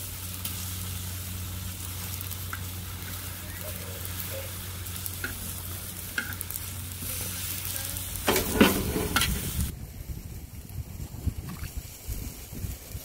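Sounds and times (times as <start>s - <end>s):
onions sizzling on hot metal: 0.0s - 13.0s
metal tongs scraping and clacking: 8.3s - 9.4s.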